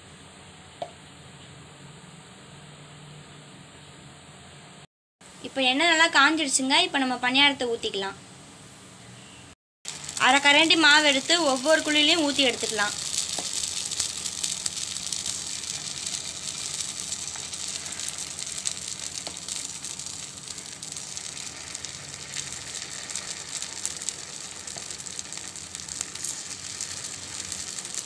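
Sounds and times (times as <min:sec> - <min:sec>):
hot oil sizzling and crackling: 0:09.8 - 0:28.0.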